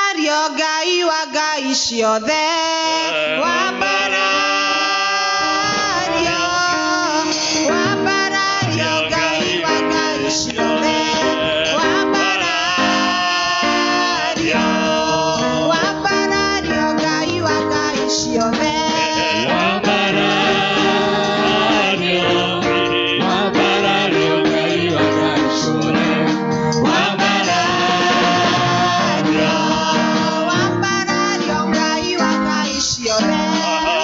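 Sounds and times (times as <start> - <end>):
woman singing into microphone: 0.0 - 34.0
keyboard: 2.3 - 34.0
backing singers: 2.4 - 34.0
bass guitar: 7.9 - 32.0.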